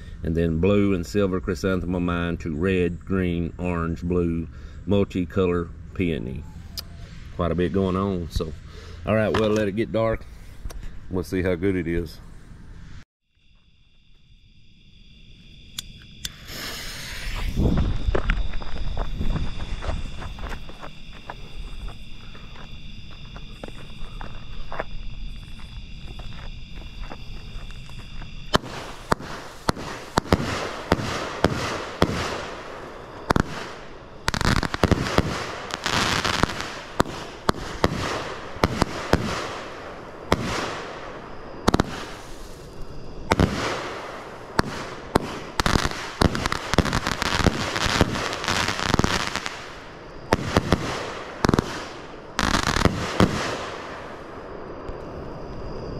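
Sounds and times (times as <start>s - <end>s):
fireworks hissing and crackling: 16.0s - 22.8s, 26.8s - 55.1s
fireworks launch thumps and bangs: 28.5s - 41.0s, 41.6s - 42.6s, 43.3s - 54.0s.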